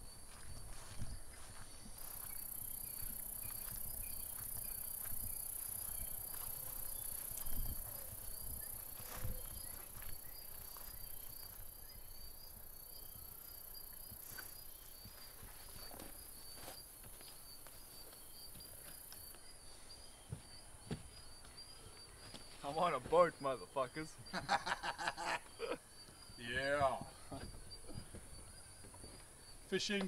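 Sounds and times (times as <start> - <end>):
crickets chirping: 0.0 - 30.0
footsteps through long grass: 0.1 - 11.9, 13.8 - 19.4.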